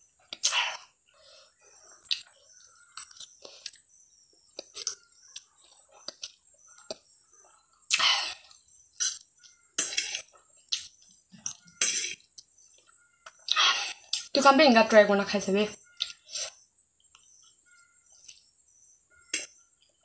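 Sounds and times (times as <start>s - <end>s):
person chewing: 2.0s - 14.3s, 16.0s - 17.5s.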